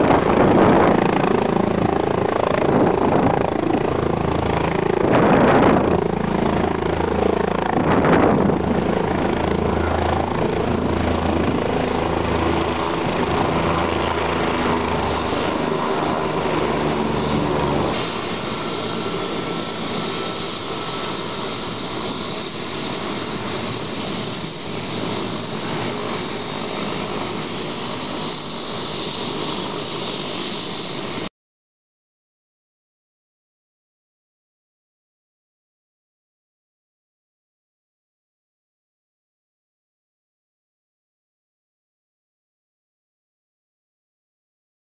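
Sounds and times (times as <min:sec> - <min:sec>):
helicopter engine and rotor: 0:00.0 - 0:31.3
turbine hiss and whine: 0:17.4 - 0:31.3.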